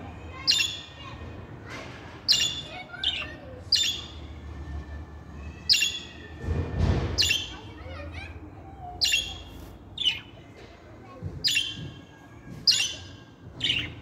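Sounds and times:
budgerigars chirping: 9.0s - 10.3s, 12.7s - 14.0s.

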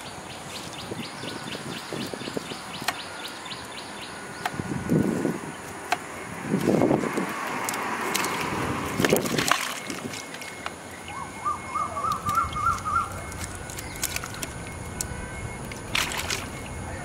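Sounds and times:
bird chirping: 0.0s - 4.7s, 10.2s - 17.0s
water splashing in bucket: 6.5s - 10.7s, 12.0s - 14.7s, 15.6s - 16.8s.

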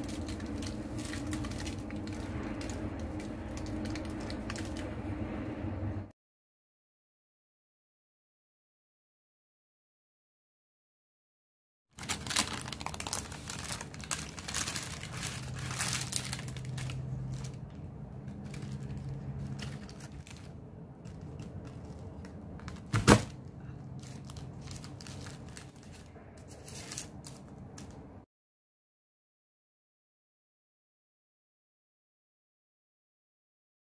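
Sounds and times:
paper crinkling: 0.0s - 5.1s, 12.0s - 28.0s.

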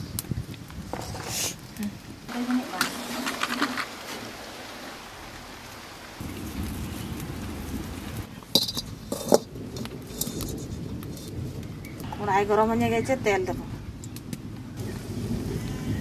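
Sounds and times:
wood fire crackling: 0.0s - 16.0s
low rumble: 5.1s - 16.0s.

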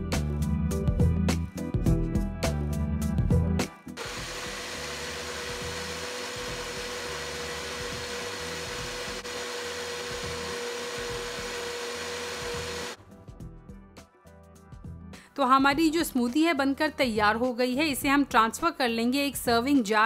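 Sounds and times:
blender whirring: 4.0s - 13.0s.

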